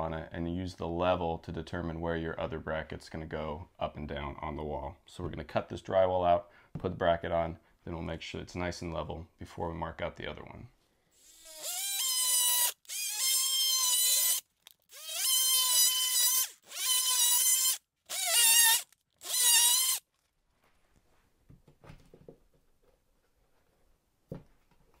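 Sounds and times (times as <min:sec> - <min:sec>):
oscillating tool cutting drywall: 0:11.2 - 0:20.0.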